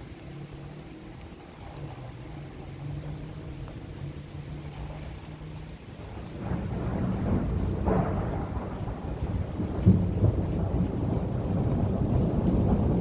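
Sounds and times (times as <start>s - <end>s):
steady rain: 0.0s - 13.0s
thunder rumbling: 0.0s - 13.0s.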